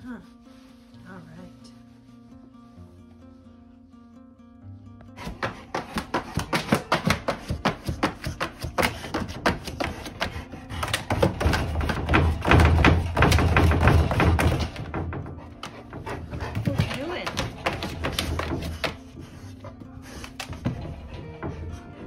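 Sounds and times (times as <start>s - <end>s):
dog claws scratching plastic crate: 5.2s - 15.0s, 15.6s - 19.1s.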